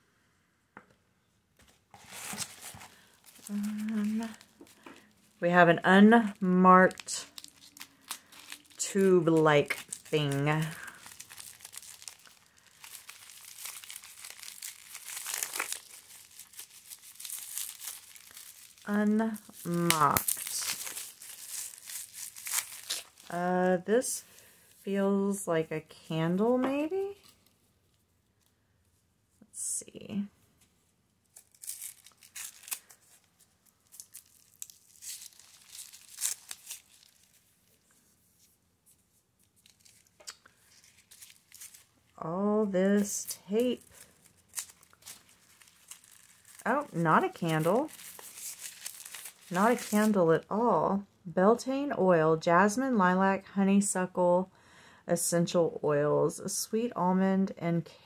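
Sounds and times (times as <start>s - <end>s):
plastic wrapping crinkling: 1.6s - 24.9s, 31.2s - 50.3s.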